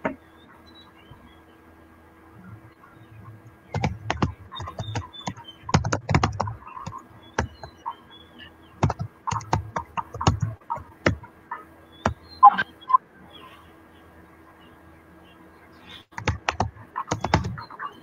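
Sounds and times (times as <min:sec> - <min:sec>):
computer keyboard typing: 0:03.7 - 0:07.8, 0:08.8 - 0:11.2, 0:16.1 - 0:17.6.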